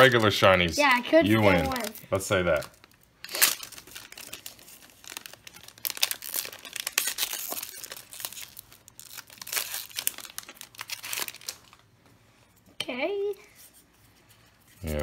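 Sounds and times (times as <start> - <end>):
foil wrapper crinkling: 0.0 - 0.7, 1.4 - 11.9
foil tearing: 3.2 - 11.8.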